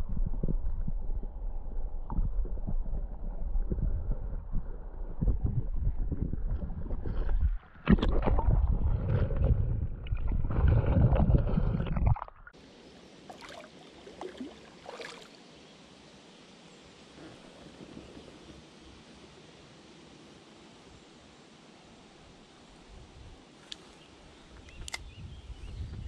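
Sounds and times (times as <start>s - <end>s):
muffled underwater rushing water: 0.0s - 16.4s
river hiss: 12.6s - 24.5s
faint splashes: 13.2s - 15.5s.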